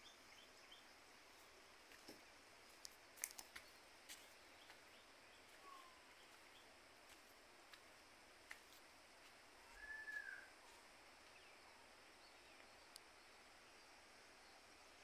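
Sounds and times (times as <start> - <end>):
outdoor background hiss: 0.0 - 15.0
faint falling whistle: 9.7 - 10.5.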